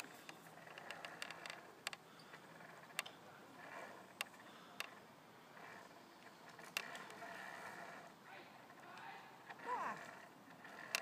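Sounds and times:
rope bridge clicks and knocks: 10.6s - 11.0s.

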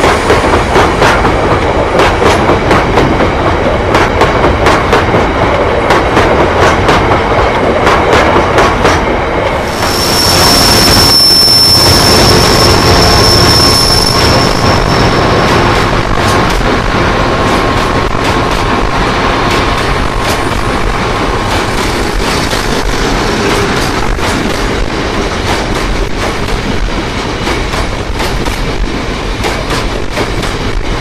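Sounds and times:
train rumble: 0.0s - 31.0s
train wheels clacking over rail joints: 0.0s - 31.0s
high-pitched whine: 9.6s - 22.2s.

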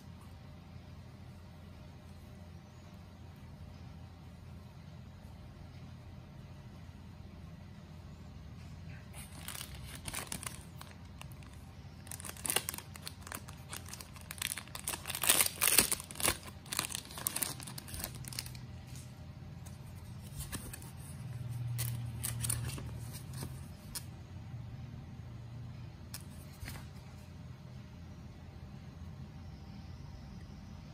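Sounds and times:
plastic bag crinkling: 9.1s - 19.0s.

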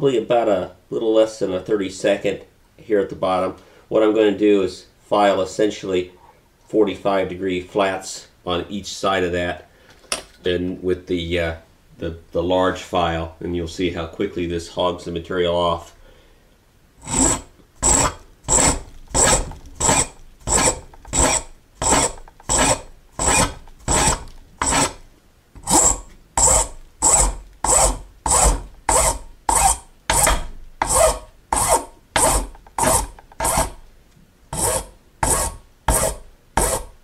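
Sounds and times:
file rasping on metal: 17.0s - 25.0s, 25.6s - 33.8s, 34.5s - 37.0s.

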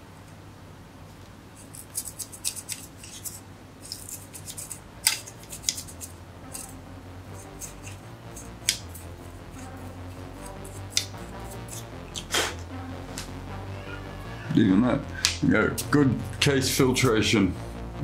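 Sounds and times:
scratching on metal heatsink fins: 1.6s - 6.8s.

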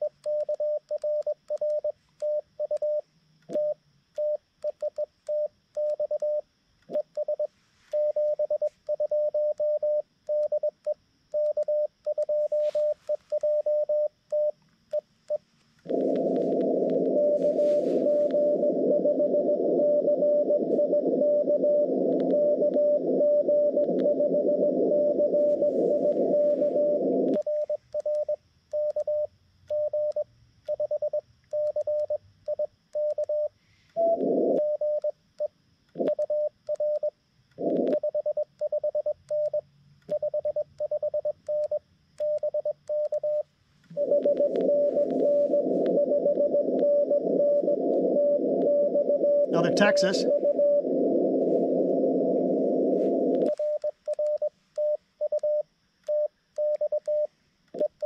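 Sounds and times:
faint morse signal: 0.0s - 10.7s, 11.3s - 35.1s, 36.2s - 58.0s
morse code tone: 11.4s - 14.5s, 15.9s - 29.2s, 40.2s - 55.6s
radio band hiss: 15.9s - 19.0s, 25.4s - 27.3s, 44.5s - 48.6s, 49.4s - 53.4s.

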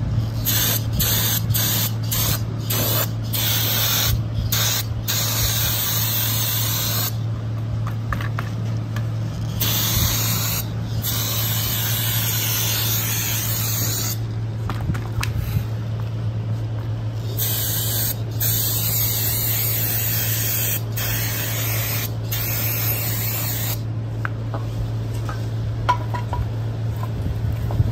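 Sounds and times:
steady low hum: 0.0s - 27.9s
aerosol spray can hissing: 9.6s - 14.2s, 17.3s - 23.8s.

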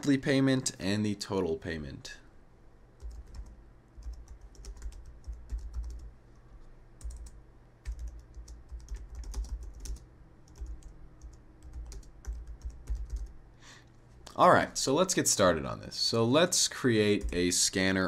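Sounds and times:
typing on keyboard: 3.0s - 6.1s, 7.0s - 13.4s.

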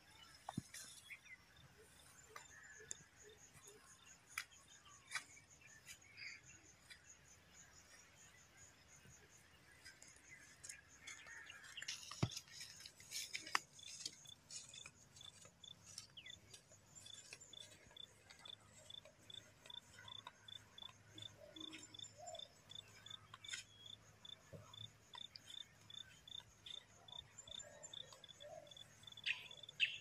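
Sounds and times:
faint insect chirping: 0.0s - 30.0s.

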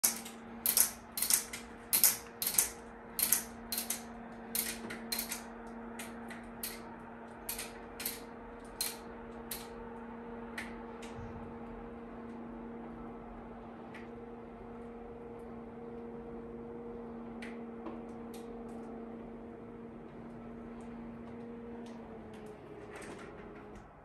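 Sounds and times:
shutter slats clicking: 0.0s - 6.9s, 7.5s - 9.8s
roller shutter motor hum: 0.0s - 24.0s.

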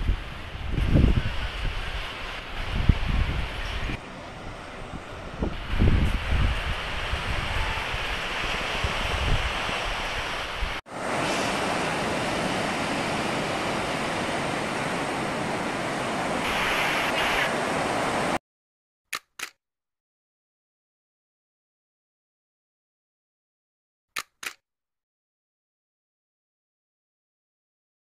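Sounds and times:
ocean surf rushing onto beach: 0.0s - 18.4s
waves washing around pilings: 0.0s - 18.4s
wind buffeting microphone: 0.0s - 18.4s.

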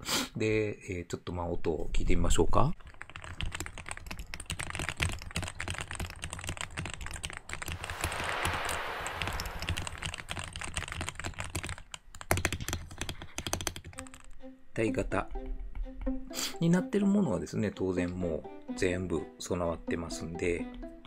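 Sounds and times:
mechanical keyboard typing: 2.8s - 7.8s, 9.7s - 14.3s.

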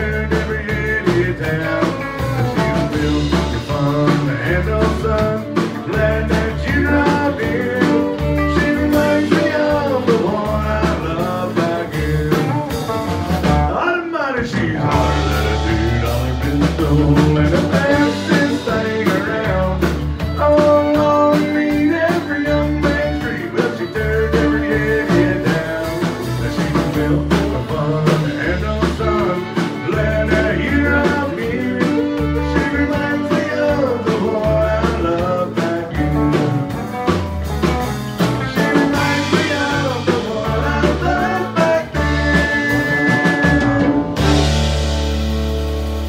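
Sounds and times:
acoustic and electric guitars: 0.0s - 46.0s
bass guitar: 0.0s - 46.0s
drums: 0.0s - 46.0s
fiddle: 18.6s - 35.4s.

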